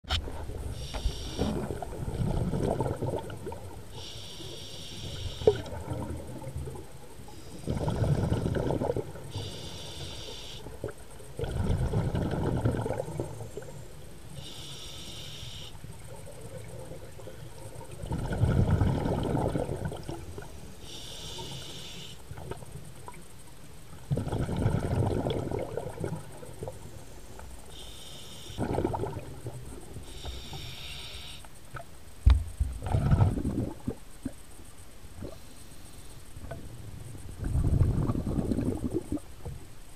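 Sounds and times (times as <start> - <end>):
hissing regulator inhale: 0.8 - 1.6, 4.0 - 5.6, 9.3 - 10.7, 14.4 - 15.8, 20.8 - 22.2, 27.0 - 28.6, 30.0 - 31.4
rumbling exhaust bubbles: 1.5 - 3.7, 11.3 - 13.6, 17.9 - 20.4, 24.1 - 26.7, 28.6 - 29.9, 32.4 - 34.2, 36.4 - 39.6.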